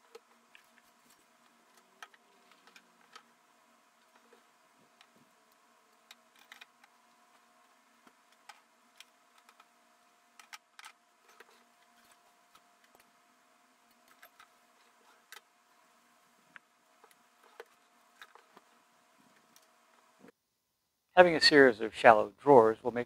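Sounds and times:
faint steady hum: 0.0s - 23.0s
small tools clicking and clinking: 5.0s - 7.0s, 13.9s - 15.5s.

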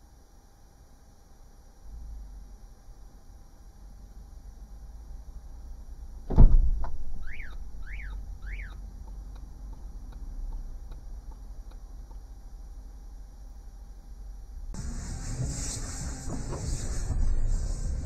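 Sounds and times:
heavy thump: 6.3s - 7.0s
electronic chirps: 7.2s - 8.8s
soft regular ticking: 7.3s - 12.4s.

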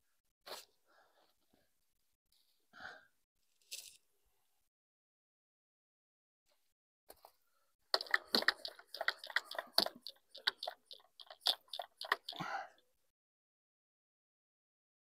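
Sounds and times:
trigger sprayer pumping: 7.9s - 12.4s.

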